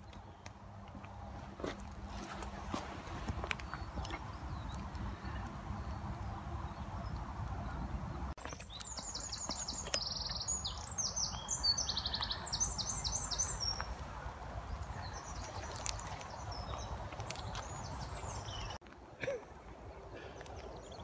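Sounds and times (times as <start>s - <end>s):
songbird trilling: 8.5s - 13.9s.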